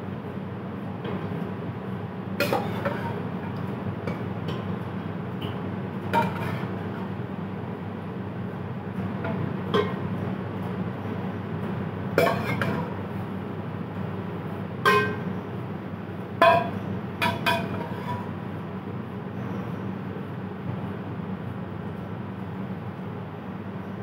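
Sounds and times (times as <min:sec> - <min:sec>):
steady low hum: 0:00.0 - 0:24.0
metal ladle clinking on pans: 0:02.4 - 0:03.1, 0:06.2 - 0:06.7, 0:09.7 - 0:10.0, 0:12.2 - 0:12.9, 0:14.9 - 0:15.3, 0:16.4 - 0:18.3.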